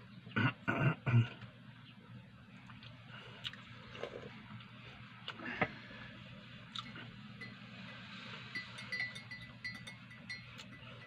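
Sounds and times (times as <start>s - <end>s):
low steady hum: 0.0s - 11.0s
mouth chewing with clicks and smacks: 2.6s - 5.4s, 6.7s - 7.0s.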